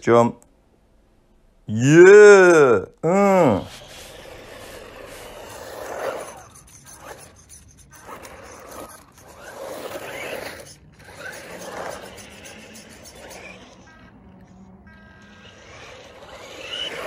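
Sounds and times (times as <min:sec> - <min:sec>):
tyres skidding on asphalt: 0:03.6 - 0:06.4, 0:08.0 - 0:17.0
electric motor whine: 0:08.0 - 0:17.0.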